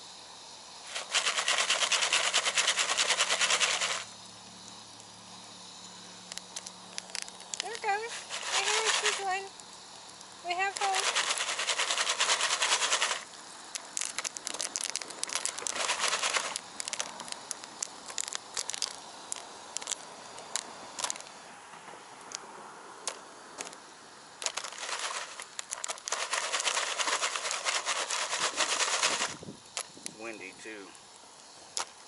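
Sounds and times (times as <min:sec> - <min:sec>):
foil pan rattling and scraping: 0:00.9 - 0:04.0, 0:07.6 - 0:09.4, 0:10.6 - 0:13.2, 0:14.0 - 0:17.0, 0:24.5 - 0:29.4
popcorn kernels popping: 0:06.2 - 0:21.3, 0:24.4 - 0:30.0.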